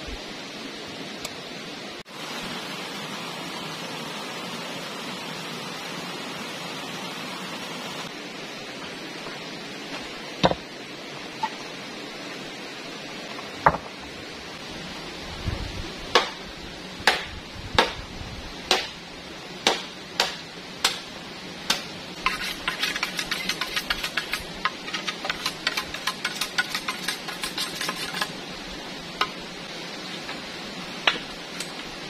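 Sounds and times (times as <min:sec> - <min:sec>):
river water rushing: 0:00.7 - 0:15.1
machete strokes on bamboo: 0:21.7 - 0:28.4.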